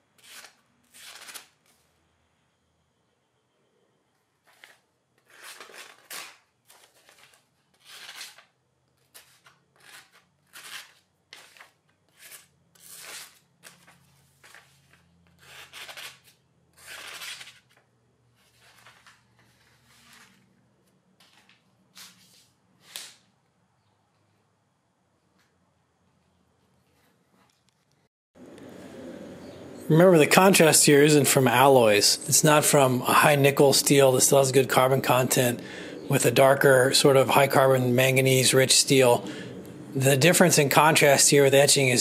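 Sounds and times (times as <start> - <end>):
knife slicing paper: 0.2 - 1.8, 4.4 - 17.8.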